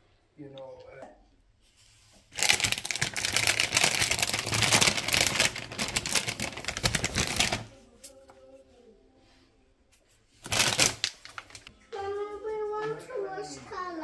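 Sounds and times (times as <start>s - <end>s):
plastic bag crinkling: 2.3s - 7.7s, 10.4s - 11.7s.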